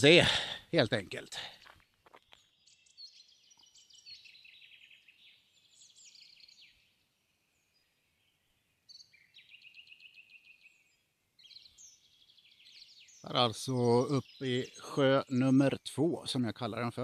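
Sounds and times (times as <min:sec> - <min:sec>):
songbird singing: 0:00.0 - 0:17.0.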